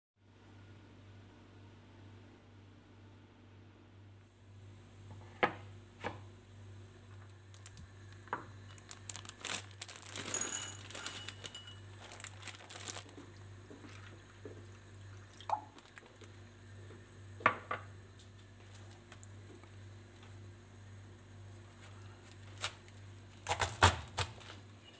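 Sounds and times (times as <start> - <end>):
crinkling rustle: 7.4 - 14.7
items knocking on stone countertop: 17.4 - 17.9.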